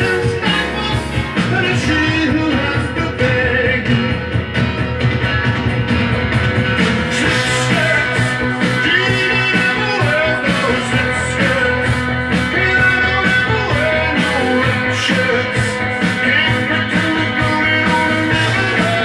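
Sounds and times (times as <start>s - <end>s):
rock song from vinyl record: 0.0s - 19.0s.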